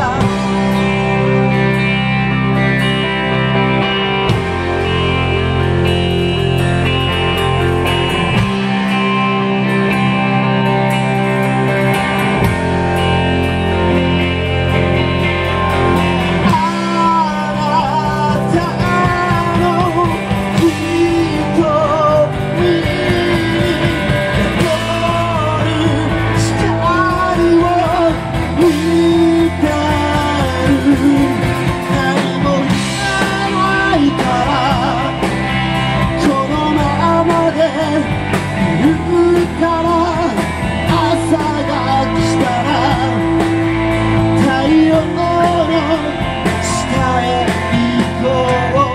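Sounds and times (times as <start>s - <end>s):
lead vocal singing: 0.0s - 1.7s, 15.6s - 48.9s
drums: 0.0s - 48.9s
electric bass: 0.0s - 48.9s
electric guitar: 0.0s - 48.9s.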